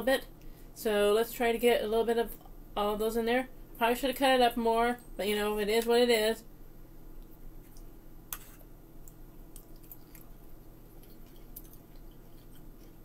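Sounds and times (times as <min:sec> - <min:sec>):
person chewing: 0:07.6 - 0:13.0.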